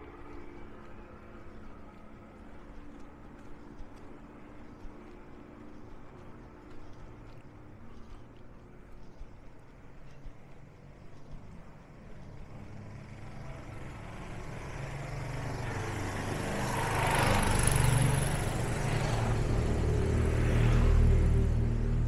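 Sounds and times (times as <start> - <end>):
motorcycle engine approaching: 12.2 - 22.0.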